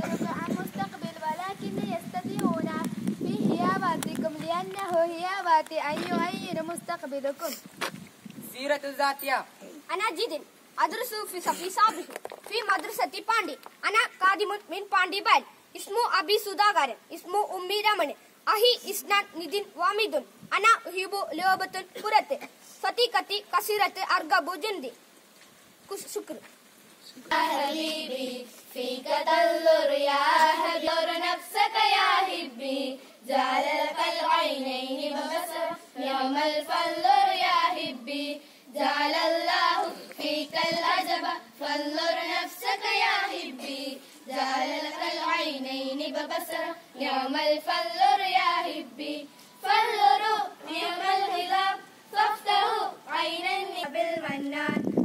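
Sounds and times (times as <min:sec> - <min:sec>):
girls singing in unison: 0:27.2 - 0:55.0.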